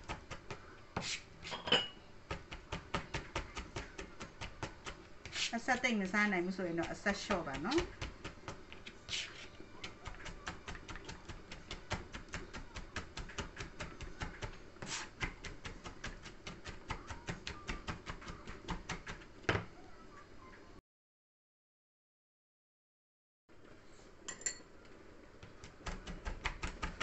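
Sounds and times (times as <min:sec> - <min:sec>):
knife mincing on cutting board: 0:06.8 - 0:19.1.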